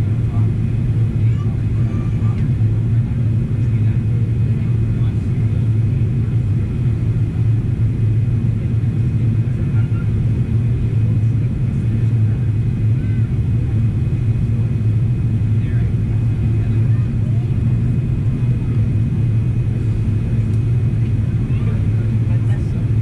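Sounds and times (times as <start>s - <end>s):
airplane engines and airflow in cabin: 0.0s - 23.0s.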